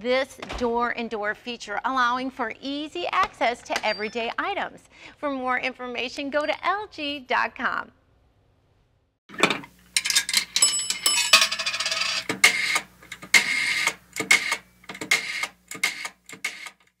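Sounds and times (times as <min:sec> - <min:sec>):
rapid sharp clicks and clatter: 0:12.1 - 0:17.0.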